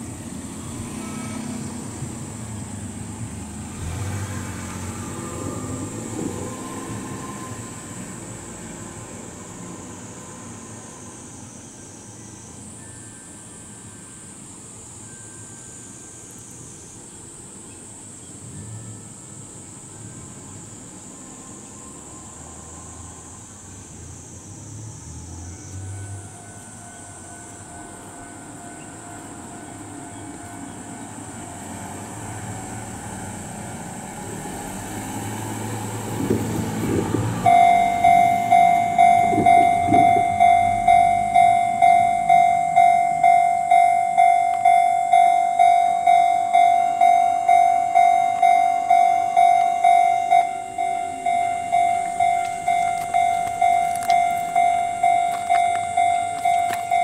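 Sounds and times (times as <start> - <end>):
electric train rumble: 0.0 - 57.0
level crossing warning bell: 11.4 - 17.1, 18.4 - 20.7, 25.5 - 57.0.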